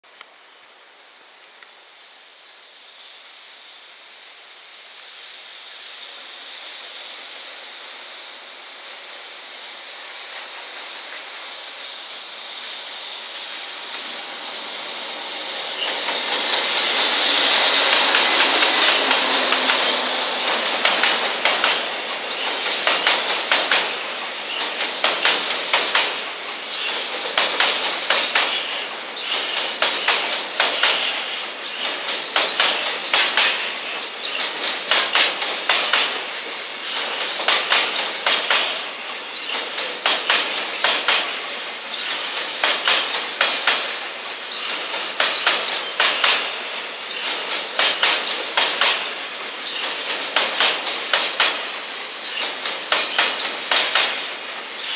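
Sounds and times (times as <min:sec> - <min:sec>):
train rumble: 0:00.3 - 0:54.9
train wheels clattering over joints: 0:13.3 - 0:54.9.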